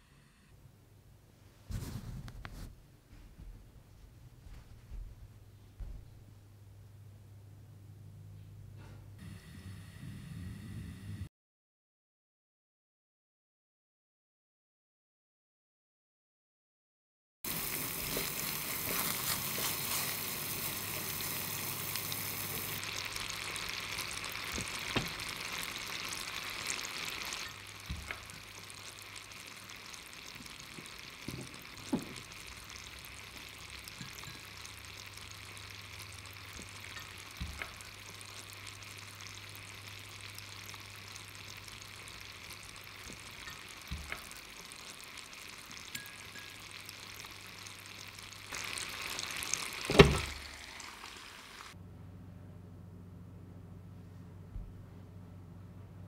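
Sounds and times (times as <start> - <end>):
syrup boiling in saucepan: 17.5 - 51.8.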